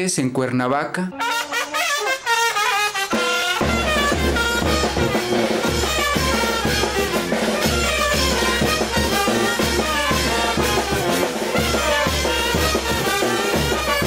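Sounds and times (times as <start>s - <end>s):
brass band playing dance music: 1.1s - 14.0s
bass drum steady beat: 3.5s - 14.0s.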